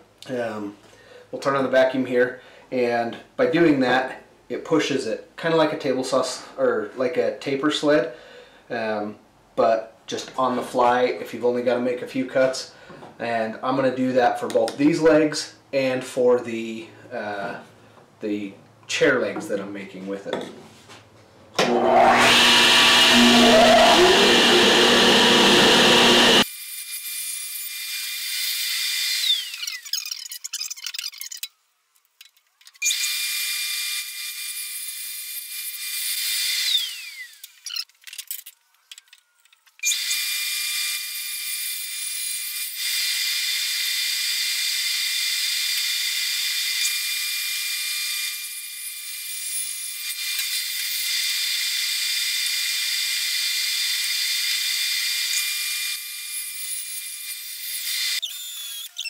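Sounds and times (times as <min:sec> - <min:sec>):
table saw motor whining: 0:21.6 - 0:26.5, 0:27.7 - 0:30.1, 0:35.6 - 0:37.9, 0:39.2 - 0:59.0.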